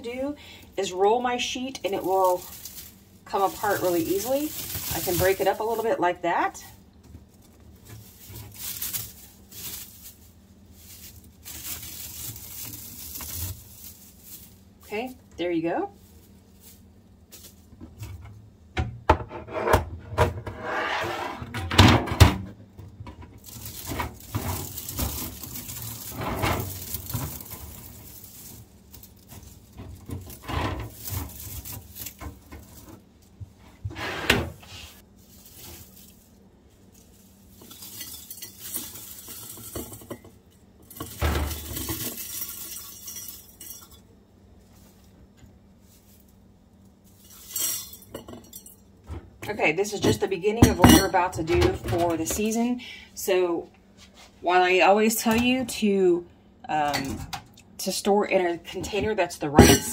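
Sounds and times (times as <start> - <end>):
shreds pouring through funnel: 0.0 - 17.8, 23.4 - 33.4, 34.6 - 43.8
dried shreds rustling and crinkling: 0.0 - 18.6, 23.3 - 33.9, 34.6 - 48.1.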